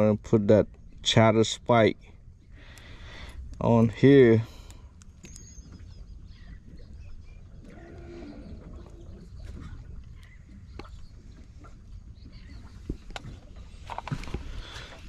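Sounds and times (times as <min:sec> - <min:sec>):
wind rumble on microphone: 0:05.4 - 0:15.0
faint animal call: 0:07.6 - 0:09.9.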